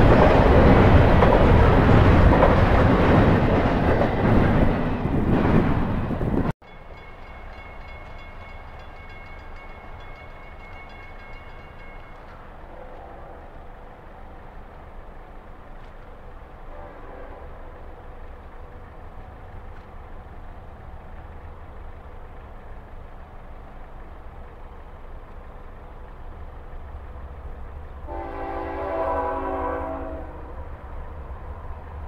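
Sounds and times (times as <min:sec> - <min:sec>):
train rumble: 0:00.0 - 0:32.0
locomotive horn chord: 0:16.7 - 0:17.7, 0:28.1 - 0:30.5.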